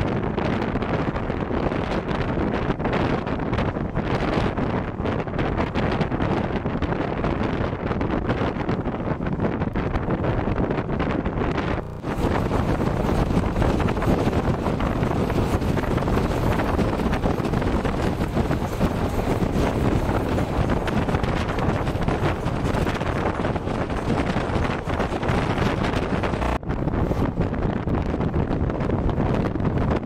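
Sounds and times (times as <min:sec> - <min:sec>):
wind buffeting microphone: 0:00.0 - 0:30.0
train coaches rumbling: 0:11.8 - 0:27.4.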